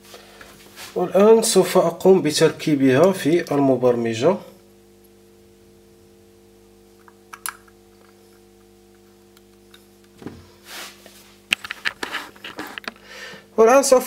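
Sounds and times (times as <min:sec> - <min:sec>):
steady low hum: 0:00.0 - 0:14.0
handling knocks: 0:10.2 - 0:10.5.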